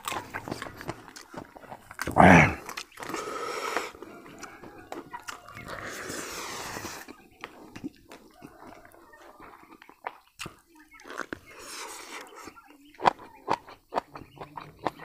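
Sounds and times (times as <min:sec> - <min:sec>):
chewing with mouth clicks: 0:00.0 - 0:15.0.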